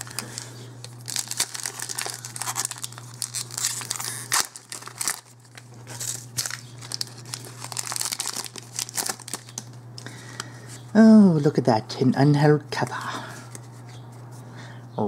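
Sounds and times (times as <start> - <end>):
foil wrapper tearing: 0.0 - 9.8
foil wrapper crinkling: 0.0 - 10.4.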